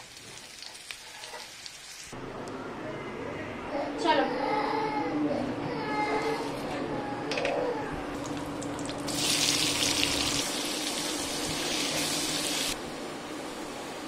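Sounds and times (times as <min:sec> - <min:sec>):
onions sizzling in oil: 0:00.0 - 0:02.2, 0:09.0 - 0:14.0
seeds crackling in hot oil: 0:00.0 - 0:02.2, 0:08.2 - 0:12.8.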